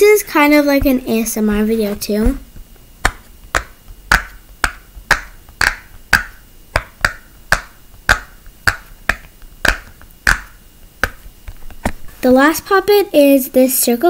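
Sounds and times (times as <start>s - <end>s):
fidget toy bubbles popping: 2.3s - 11.3s.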